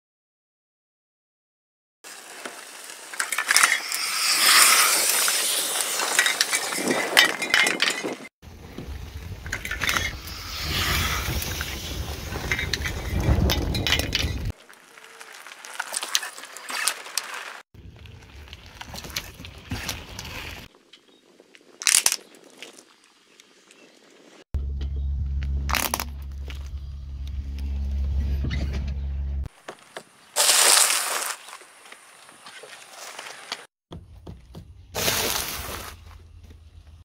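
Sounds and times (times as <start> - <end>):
car rumble: 24.6 - 29.5.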